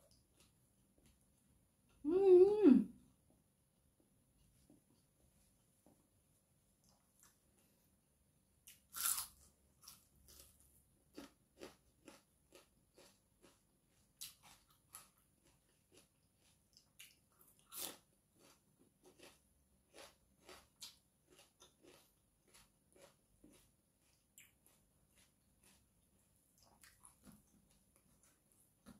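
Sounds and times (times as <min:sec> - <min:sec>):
person chewing crisp food: 0:00.0 - 0:01.5, 0:08.6 - 0:28.9.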